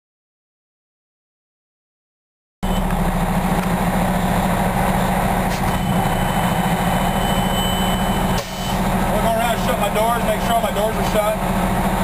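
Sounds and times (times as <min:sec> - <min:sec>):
diesel engine idling: 0:02.6 - 0:12.0.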